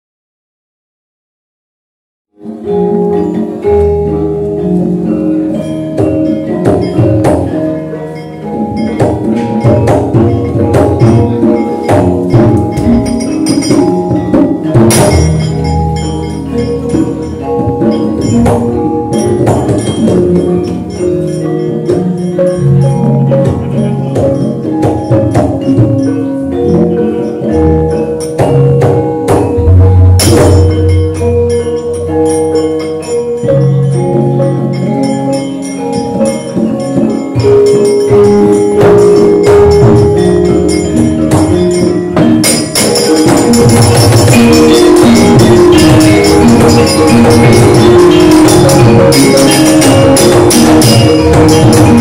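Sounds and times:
gamelan ensemble playing: 2.4s - 52.0s
sharp knocks: 28.2s - 31.6s.

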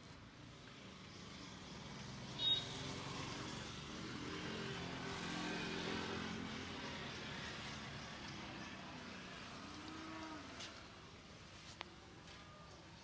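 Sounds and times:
vehicle engine passing: 1.2s - 11.0s.

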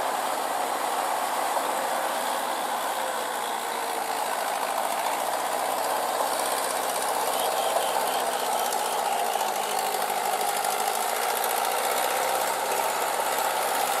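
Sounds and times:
tractor diesel engine running: 0.0s - 14.0s
steel wheels knocking clatter: 3.8s - 14.0s.

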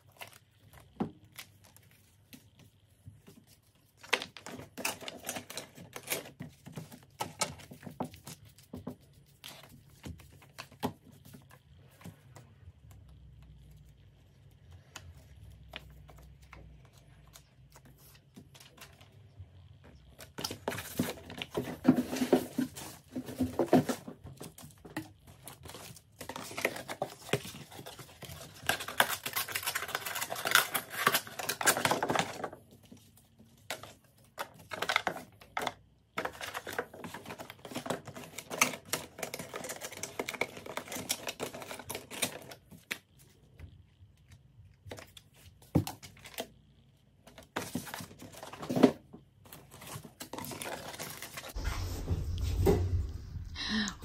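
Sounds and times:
packaging rustling and crinkling: 0.0s - 12.2s, 20.1s - 43.2s, 47.3s - 52.2s.

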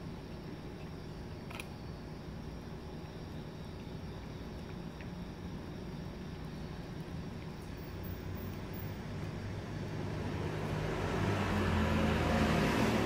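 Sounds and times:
steady low hum: 0.0s - 13.0s
car engine and tyres approaching: 9.1s - 13.0s.

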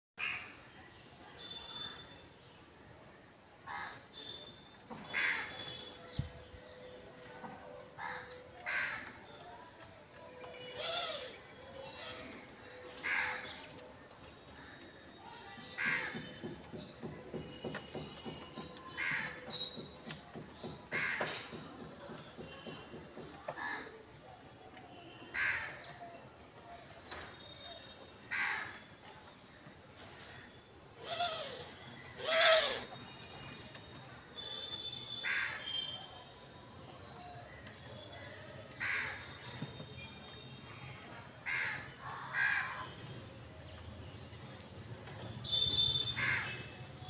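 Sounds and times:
crow cawing: 25.3s - 25.8s, 35.2s - 35.7s, 41.4s - 42.9s, 46.2s - 46.6s.

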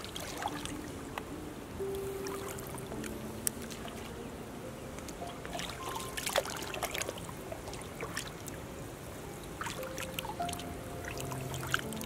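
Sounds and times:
hand stirring shallow water: 0.0s - 1.2s, 5.3s - 8.7s.

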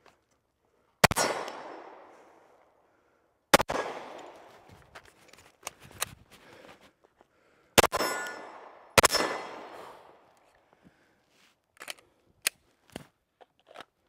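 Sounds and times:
handgun shots with echo: 1.0s - 2.1s, 3.6s - 4.5s, 7.8s - 10.2s.

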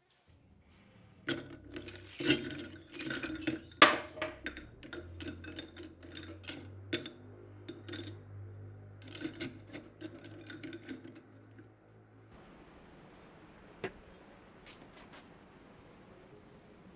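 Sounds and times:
brass scrap clinking: 1.3s - 11.6s.

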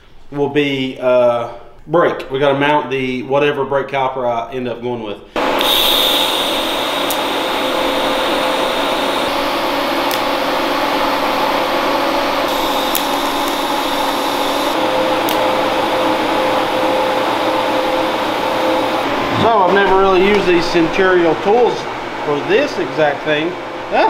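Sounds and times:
welding arc hissing: 5.4s - 21.8s.

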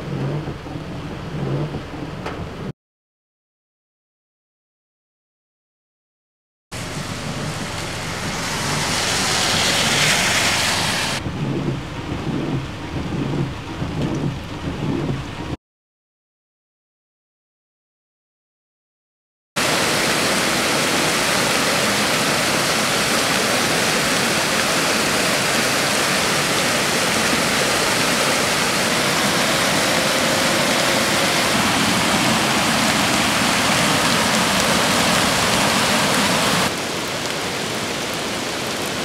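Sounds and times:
creek rushing over rocks: 6.8s - 11.2s, 19.6s - 39.0s
rain falling on wet road: 6.8s - 11.2s, 19.6s - 39.0s.

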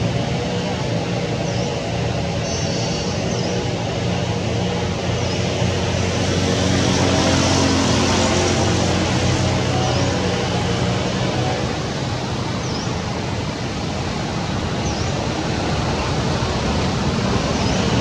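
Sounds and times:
distant engine drone: 0.0s - 18.0s.

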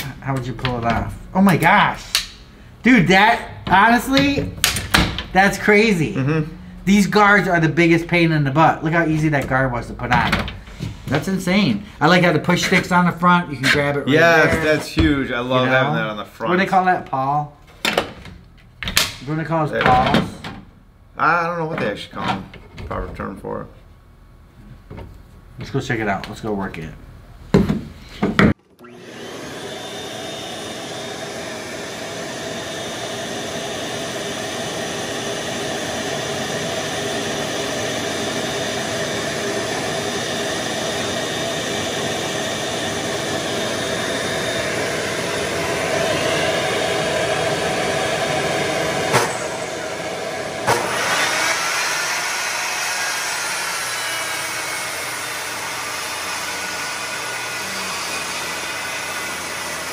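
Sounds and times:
table saw motor whining: 28.8s - 59.9s.

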